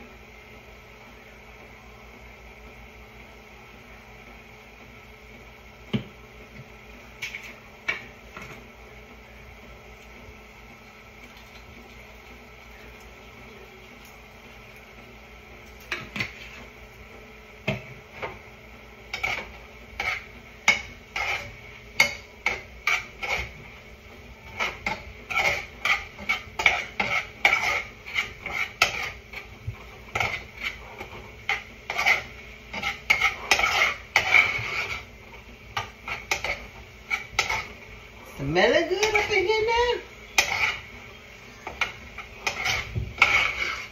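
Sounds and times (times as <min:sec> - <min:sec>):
utensil scraping and knocking a pot: 0:15.8 - 0:16.8, 0:17.6 - 0:43.9.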